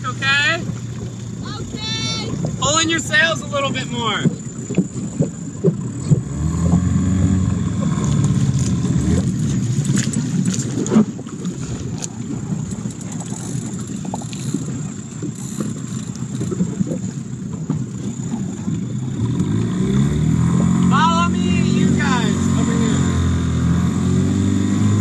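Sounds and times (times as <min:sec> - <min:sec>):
outboard motor running: 0:00.0 - 0:25.0
water against hull: 0:00.0 - 0:25.0.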